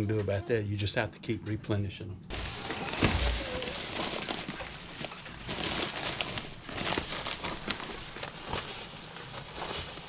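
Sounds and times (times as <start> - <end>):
plastic bag rustling: 2.3 - 10.0
shavings pattering: 2.3 - 10.0.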